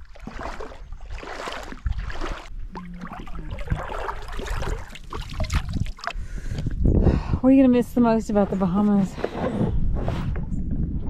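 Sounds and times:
water sloshing as someone wades: 0.0s - 6.7s.

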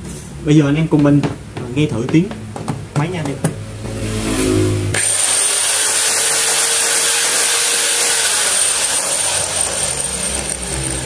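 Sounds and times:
angle grinder whining: 4.2s - 11.0s.

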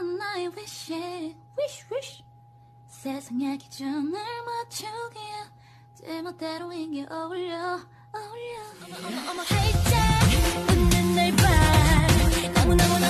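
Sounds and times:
woman singing: 0.0s - 2.2s, 2.9s - 13.0s
faint electrical hum: 0.0s - 8.8s.

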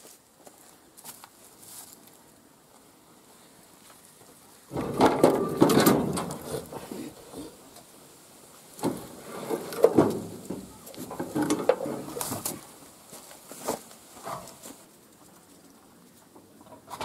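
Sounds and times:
metal clatter: 4.7s - 6.7s.

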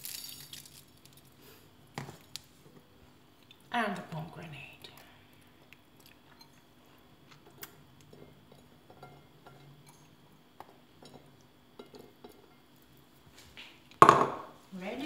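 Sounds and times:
seeds dropping onto ceramic plate: 0.0s - 1.3s.

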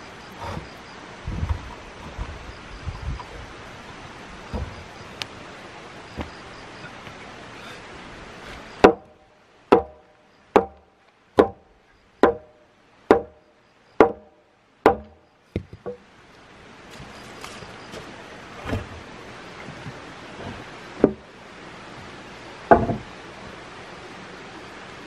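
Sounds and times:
wood being chopped: 8.8s - 10.0s, 10.6s - 11.6s, 12.2s - 12.5s, 13.1s - 13.4s, 14.0s - 14.3s, 14.9s - 16.0s.

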